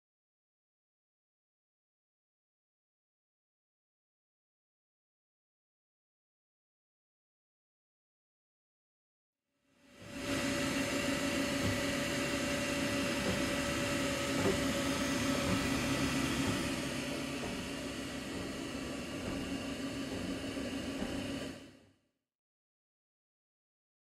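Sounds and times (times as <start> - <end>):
printer motors whirring: 10.0 - 21.8.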